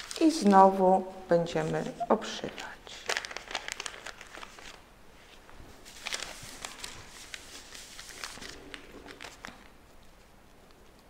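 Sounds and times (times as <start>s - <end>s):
paper and fabric rustling: 1.4s - 10.3s.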